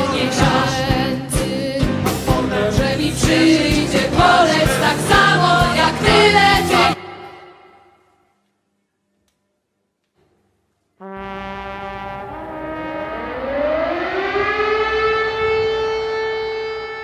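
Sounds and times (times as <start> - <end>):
steady horn tones: 11.0 - 17.0
air-raid siren winding up: 12.0 - 17.0.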